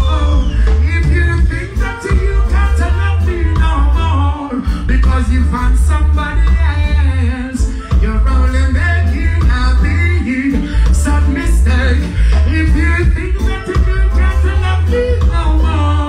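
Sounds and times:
live reggae band playing: 0.0s - 16.0s
man singing into a microphone: 0.0s - 16.0s.

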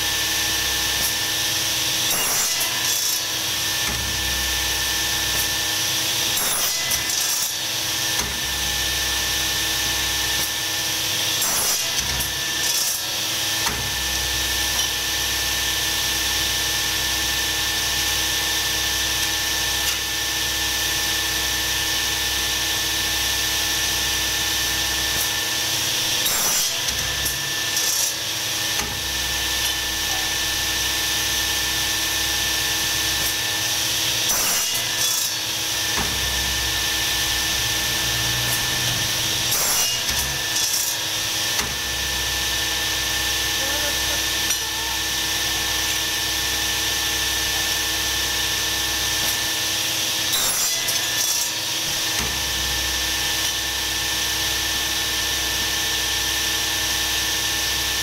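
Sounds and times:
machine motor humming: 35.5s - 49.7s.

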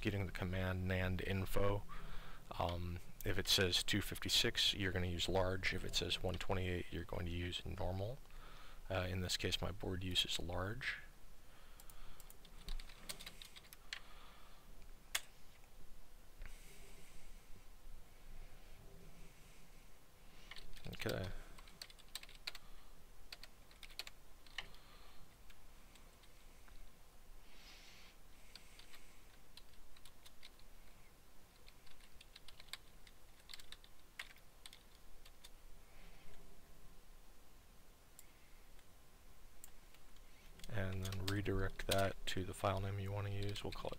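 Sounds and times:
typing on a keyboard: 11.8s - 14.0s, 20.5s - 22.6s, 23.3s - 24.8s, 28.5s - 30.7s, 31.5s - 35.6s.

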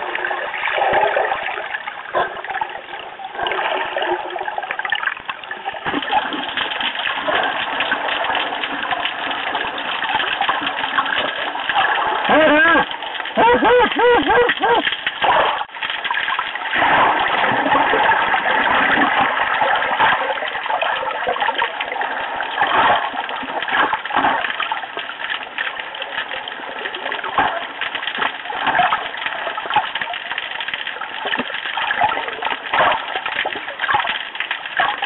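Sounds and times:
underwater clicks and crackles: 0.0s - 35.0s
underwater rushing: 0.0s - 35.0s.

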